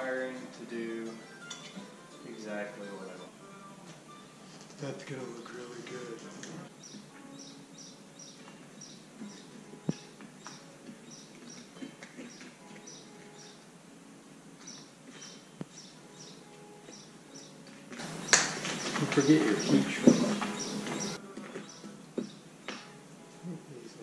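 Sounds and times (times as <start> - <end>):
bird chirping: 0.0 - 3.4, 4.1 - 13.7, 14.6 - 23.0.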